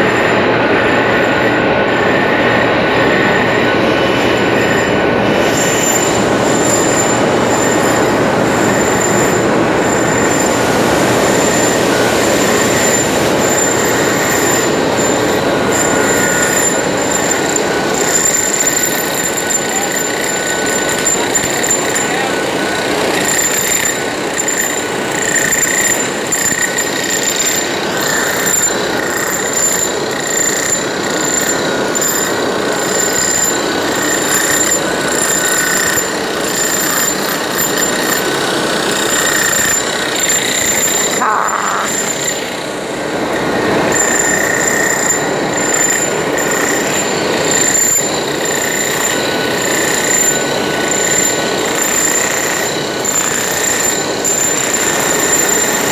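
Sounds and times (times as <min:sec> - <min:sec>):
hammer drill pounding into concrete: 0:04.6 - 0:55.9.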